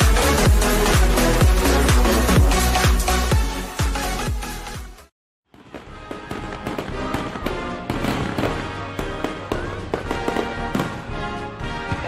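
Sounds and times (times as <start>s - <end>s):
music playing: 0.0s - 12.0s
fireworks popping and banging: 5.5s - 11.2s.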